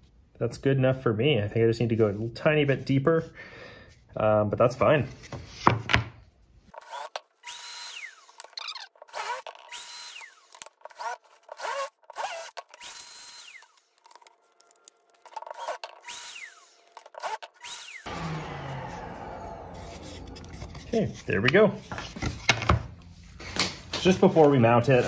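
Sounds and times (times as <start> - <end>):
drill clicks: 6.7 - 18.1
cordless drill bursts: 6.8 - 14.0, 15.3 - 19.9.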